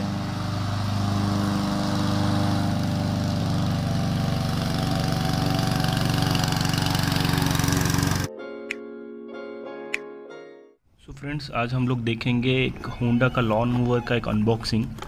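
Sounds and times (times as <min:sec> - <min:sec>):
lawn mower engine running: 0:00.0 - 0:08.3.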